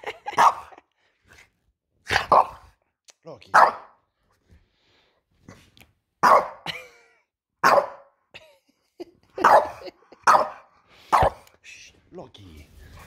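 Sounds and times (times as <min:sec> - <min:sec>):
dog barking: 0:00.3 - 0:00.8, 0:02.1 - 0:02.7, 0:03.5 - 0:04.0, 0:06.2 - 0:06.7, 0:07.6 - 0:08.1, 0:09.4 - 0:11.4.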